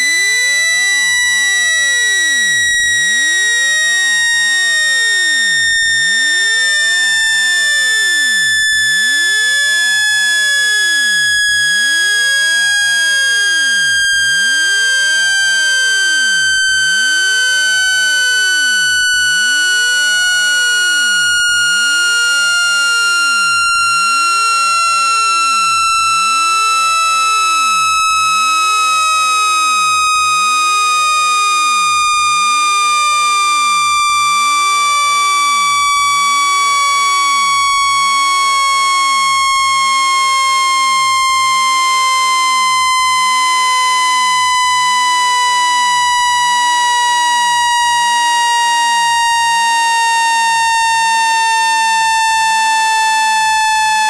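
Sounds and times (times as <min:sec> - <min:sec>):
electronic tone gliding down: 0:11.0 - 0:28.5.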